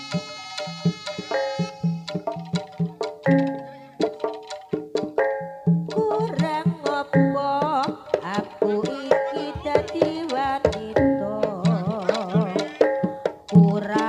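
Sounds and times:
wavering melody line: 0:00.0 - 0:13.9
hand drum strokes: 0:00.0 - 0:14.0.

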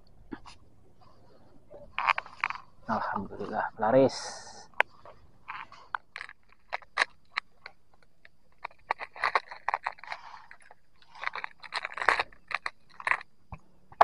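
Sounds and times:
handling clicks scrapes and rustles: 0:01.9 - 0:02.8, 0:04.8 - 0:13.3.

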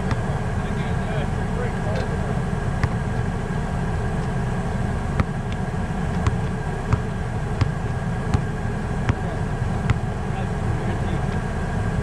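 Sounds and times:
basketball bouncing on asphalt: 0:00.0 - 0:00.4, 0:02.7 - 0:10.2.

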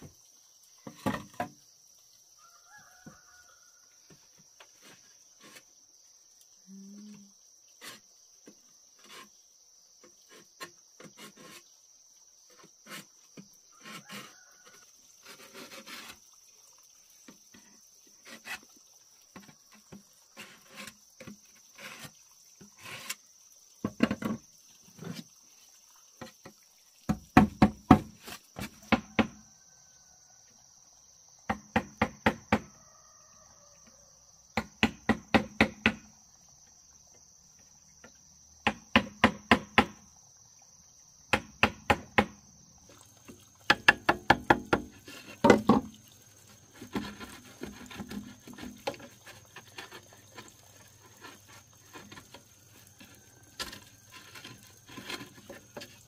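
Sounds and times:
rapid knocking blows on wood: 0:27.1 - 0:29.4, 0:31.5 - 0:32.7, 0:34.6 - 0:36.1, 0:38.6 - 0:40.0, 0:41.3 - 0:42.4, 0:43.7 - 0:45.8.

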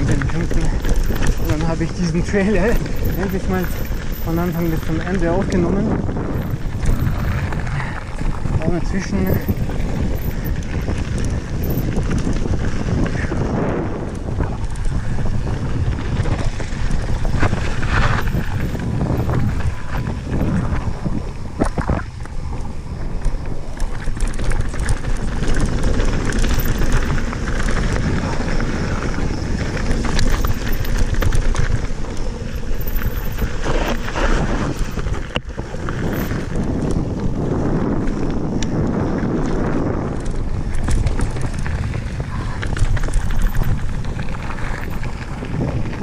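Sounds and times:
bike rattling: 0:00.0 - 0:46.0
bike tyres crunching on gravel: 0:00.0 - 0:46.0
wind buffeting microphone: 0:00.0 - 0:46.0.

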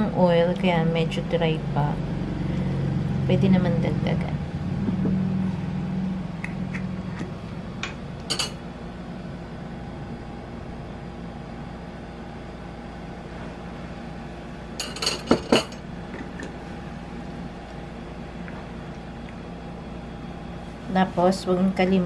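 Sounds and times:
low hum: 0:00.0 - 0:22.0
metal spoon clinking on dish: 0:08.3 - 0:08.6.

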